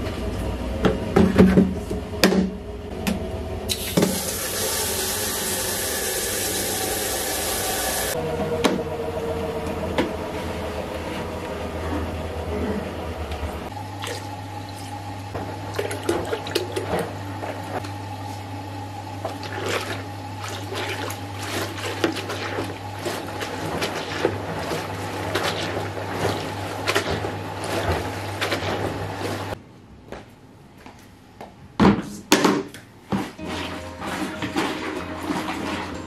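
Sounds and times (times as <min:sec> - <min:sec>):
steady low hum: 0:07.4 - 0:31.8
mop sloshing in bucket of water: 0:14.0 - 0:18.4, 0:19.2 - 0:29.6, 0:33.1 - 0:36.0.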